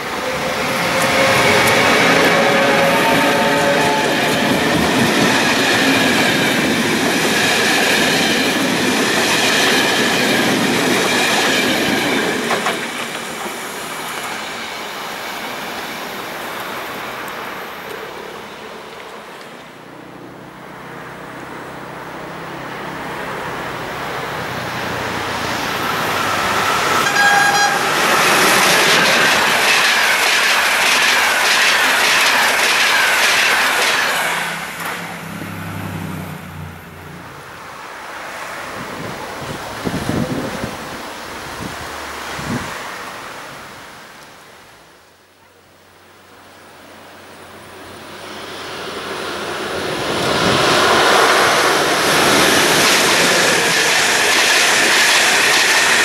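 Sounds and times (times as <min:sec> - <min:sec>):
train horn blast: 0:00.0 - 0:05.0, 0:26.6 - 0:28.1
train coaches rolling past: 0:00.0 - 0:44.2, 0:46.1 - 0:56.0.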